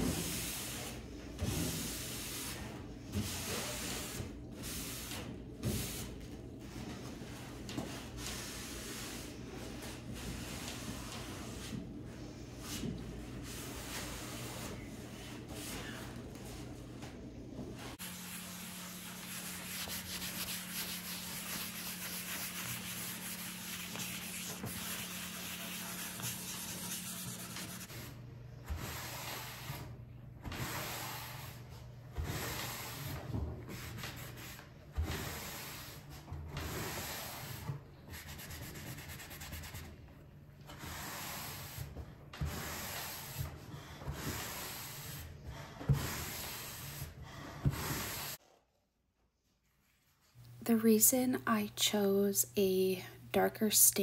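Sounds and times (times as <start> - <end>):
cloth rubbing on wood: 17.9 - 27.9.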